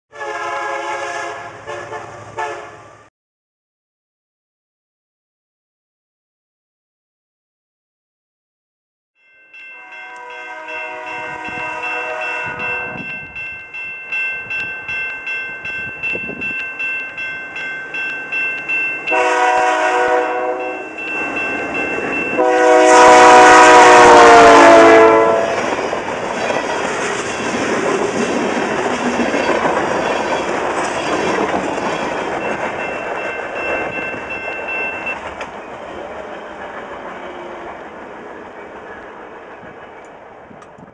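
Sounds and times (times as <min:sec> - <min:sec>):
locomotive air horn blasts: 0:00.1 - 0:03.0, 0:09.8 - 0:13.1, 0:19.1 - 0:21.0, 0:22.3 - 0:25.7
steel wheels clattering on rails: 0:25.5 - 0:40.9.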